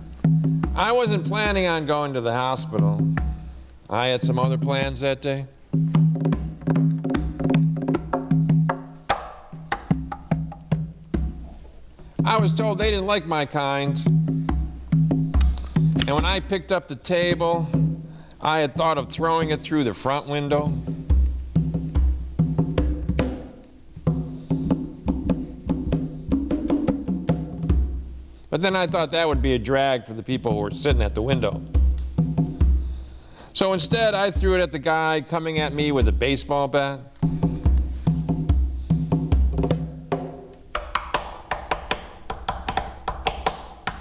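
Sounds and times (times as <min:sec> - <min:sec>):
conga drum played by hand: 0:00.0 - 0:01.9, 0:02.6 - 0:03.6, 0:04.2 - 0:05.0, 0:05.6 - 0:13.3, 0:13.9 - 0:16.6, 0:17.2 - 0:18.2, 0:20.5 - 0:28.2, 0:30.4 - 0:33.1, 0:35.5 - 0:36.5, 0:37.2 - 0:44.0.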